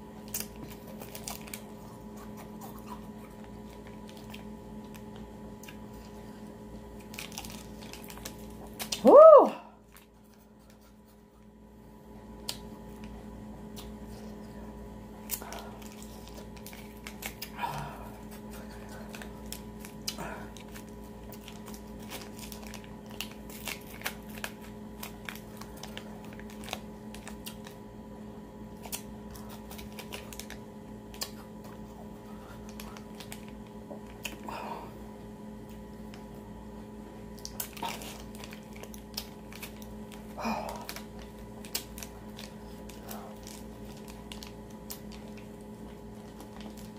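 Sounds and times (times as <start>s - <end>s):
steady low hum: 0.0s - 46.9s
plastic sleeve crinkling: 6.9s - 9.1s, 18.4s - 27.8s, 28.7s - 34.4s, 37.3s - 46.9s.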